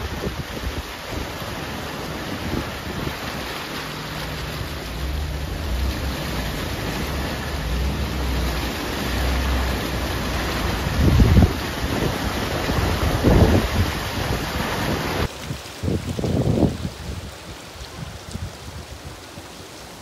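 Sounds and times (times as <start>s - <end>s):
low engine hum: 0.0s - 15.3s
wind rushing over microphone: 0.0s - 19.3s.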